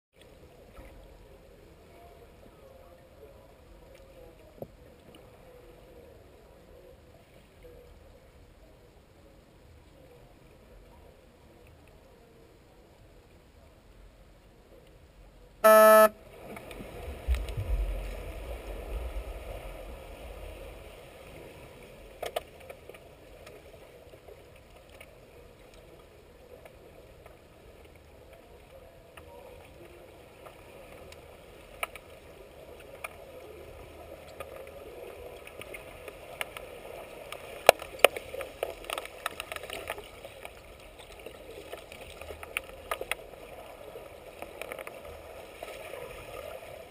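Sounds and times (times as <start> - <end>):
underwater electronic horn blast: 15.6 - 16.2.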